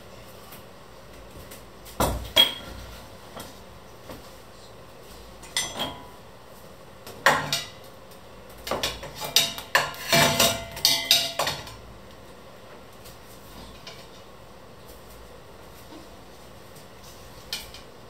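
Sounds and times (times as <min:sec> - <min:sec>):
metal utensils clinking on a pot: 0:05.4 - 0:06.1, 0:08.7 - 0:11.8.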